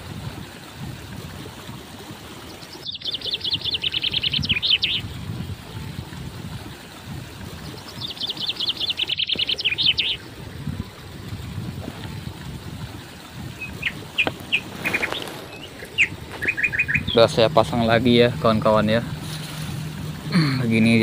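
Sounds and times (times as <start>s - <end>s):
songbird singing: 2.5s - 5.9s, 7.5s - 11.0s, 13.3s - 21.0s.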